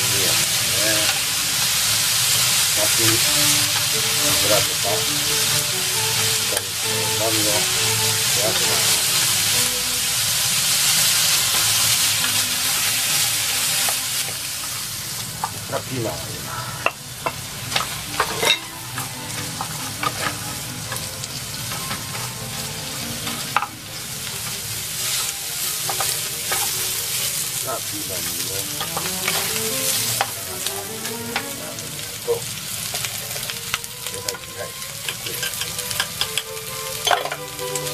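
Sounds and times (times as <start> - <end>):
meat and vegetables sizzling in pan: 0.0 - 37.9
wooden utensils knocking on pan: 16.8 - 24.0, 25.2 - 27.0, 28.6 - 31.7, 33.8 - 37.9.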